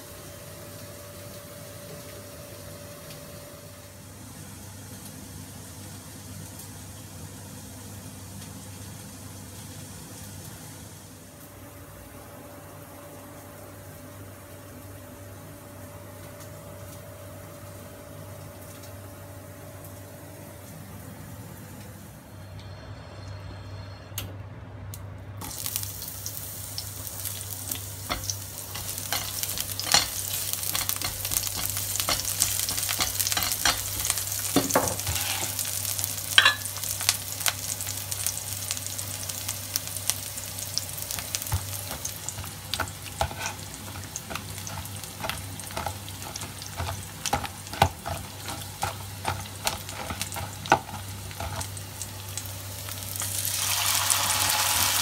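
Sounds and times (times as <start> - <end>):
shallots sizzling in hot oil: 25.4 - 55.0.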